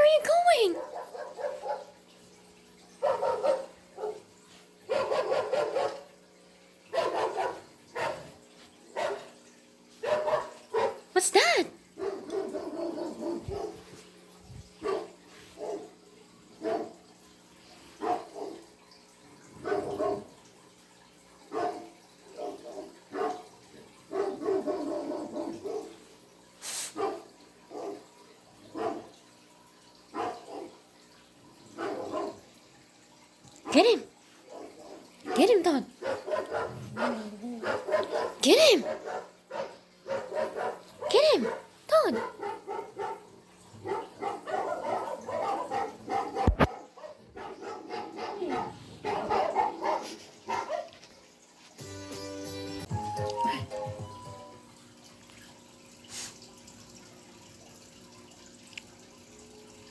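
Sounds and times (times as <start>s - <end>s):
dog barking: 0.8s - 2.0s, 3.0s - 6.2s, 6.9s - 9.4s, 10.0s - 11.1s, 12.0s - 13.9s, 14.8s - 16.0s, 16.6s - 17.0s, 18.0s - 18.7s, 19.6s - 20.4s, 21.5s - 26.0s, 26.8s - 28.1s, 28.7s - 29.2s, 30.1s - 30.8s, 31.7s - 32.5s, 33.6s - 51.0s.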